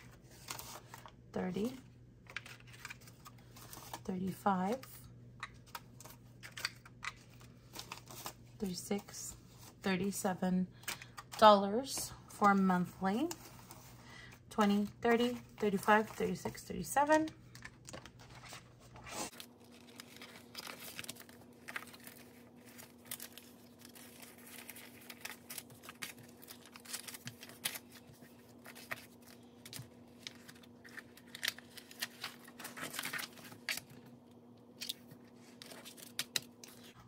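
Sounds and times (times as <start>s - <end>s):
paper cash and envelopes rustling: 0.0s - 37.0s.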